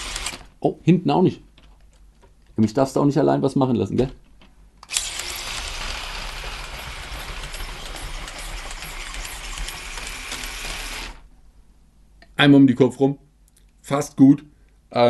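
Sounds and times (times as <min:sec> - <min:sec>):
toy train motors whirring: 0:00.0 - 0:00.5, 0:04.9 - 0:11.2
wheels on plastic rails: 0:04.9 - 0:11.2.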